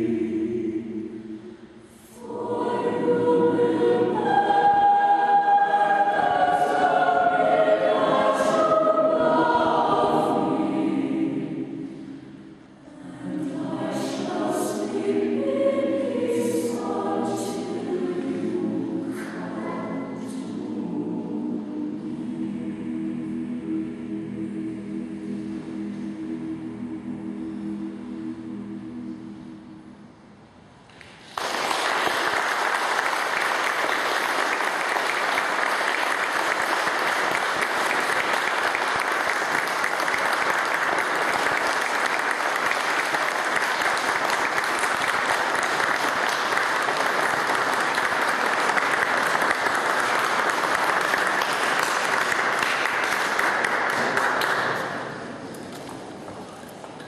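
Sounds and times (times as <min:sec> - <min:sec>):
audience applauding: 0:31.2 - 0:55.1.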